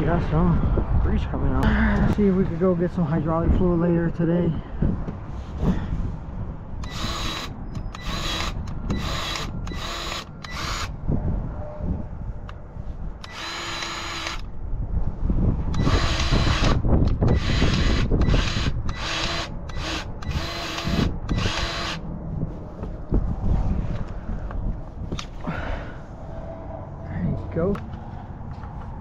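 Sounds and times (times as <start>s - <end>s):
grease gun motor whirring: 6.8s - 10.9s, 13.2s - 14.4s, 15.8s - 22.0s.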